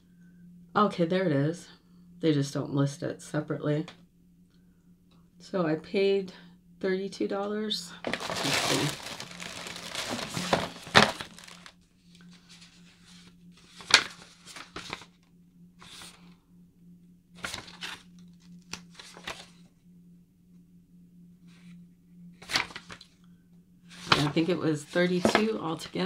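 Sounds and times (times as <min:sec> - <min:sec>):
packaging rustling and crinkling: 0:08.0 - 0:11.8, 0:12.5 - 0:15.1, 0:24.0 - 0:25.6.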